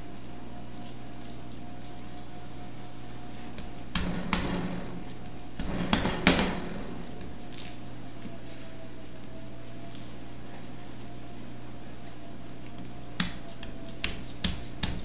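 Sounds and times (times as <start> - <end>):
hands patting raw meat: 2.9 - 8.8, 12.0 - 15.0.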